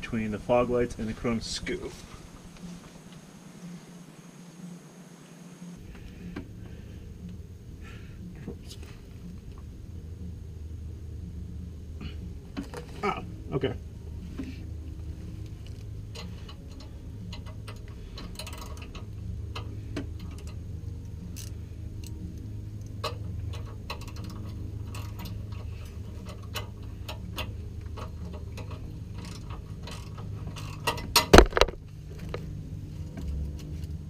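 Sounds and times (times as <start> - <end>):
steady low hum: 0.0 - 34.0
ratchet wrench clicking: 15.7 - 20.6, 21.2 - 31.3.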